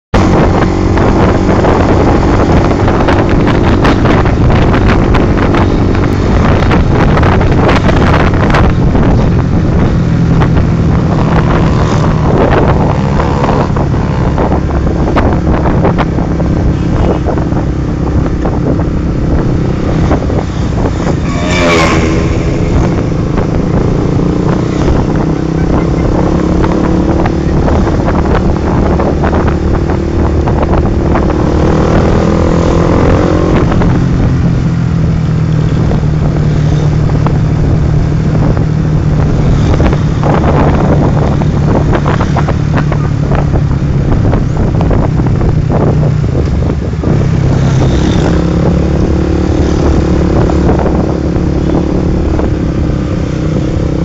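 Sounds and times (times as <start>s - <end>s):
wind buffeting microphone: 0.1s - 54.0s
motorcycle engine running: 0.2s - 54.0s
rising and falling pitched sound: 20.8s - 27.4s.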